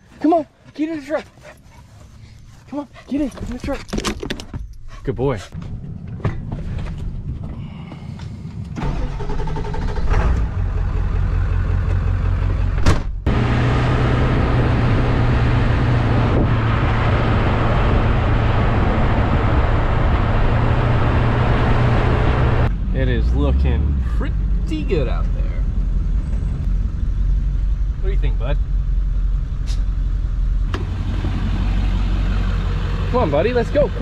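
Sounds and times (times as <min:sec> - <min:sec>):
wind and road rush: 0:00.0 - 0:34.0
truck engine running: 0:24.9 - 0:34.0.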